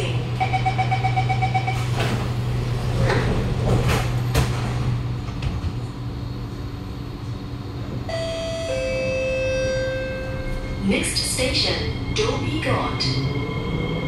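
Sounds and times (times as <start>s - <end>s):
low train hum: 0.0s - 14.0s
rapidly pulsing warning beep: 0.4s - 1.9s
train doors sliding shut: 1.7s - 5.8s.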